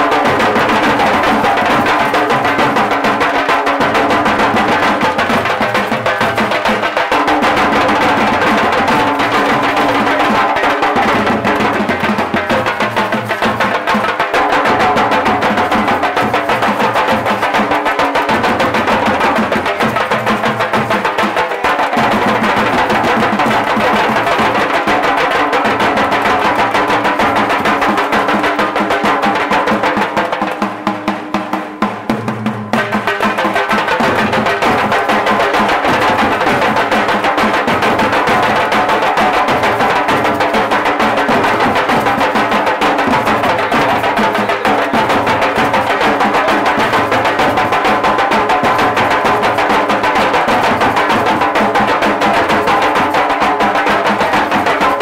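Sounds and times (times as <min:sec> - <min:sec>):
small drums played with sticks: 0:00.0 - 0:55.0.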